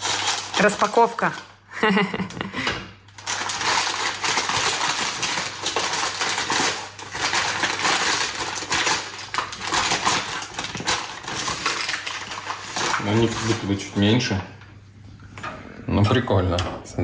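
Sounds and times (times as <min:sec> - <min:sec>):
packaging crackling and rustling: 0:00.0 - 0:01.5, 0:03.1 - 0:14.4.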